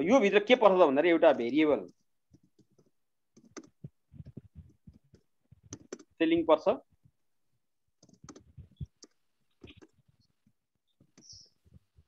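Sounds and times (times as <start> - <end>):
computer keyboard typing: 1.9 - 6.2, 8.0 - 10.0.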